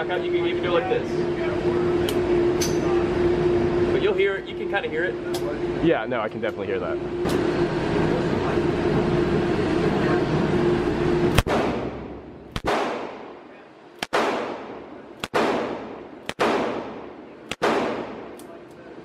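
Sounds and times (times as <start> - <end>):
steady hum: 0.0 - 19.0
revolver shots echoing: 11.3 - 13.4, 14.0 - 18.4.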